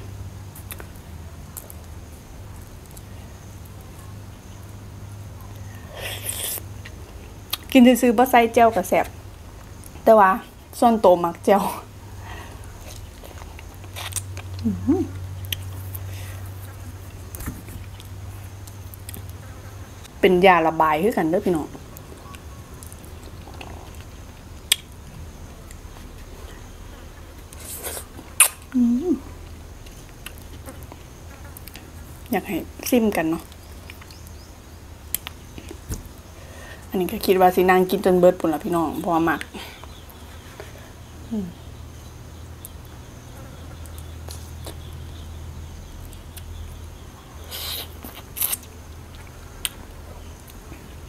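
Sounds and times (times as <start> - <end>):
steady low hum: 0.0 - 51.0
person chewing soft fruit: 0.5 - 7.7, 12.4 - 20.2, 21.8 - 32.3, 33.5 - 36.4, 39.4 - 51.0
soft chewing: 12.4 - 20.2, 21.9 - 28.5, 29.4 - 32.3, 43.7 - 45.2
person humming: 14.6 - 15.2, 28.8 - 29.3
mouth clicks: 27.9 - 28.8
slurping: 47.5 - 48.7
fingers peeling fruit skin: 47.5 - 49.8.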